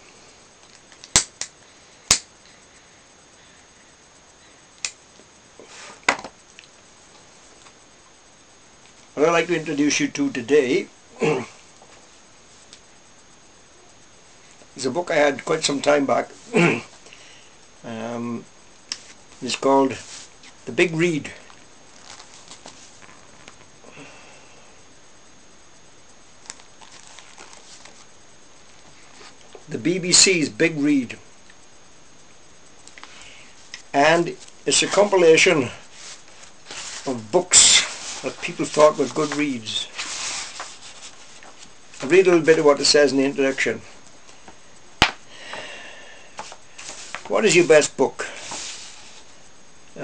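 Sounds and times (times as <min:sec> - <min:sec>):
sharp click: 0:01.0 - 0:01.5.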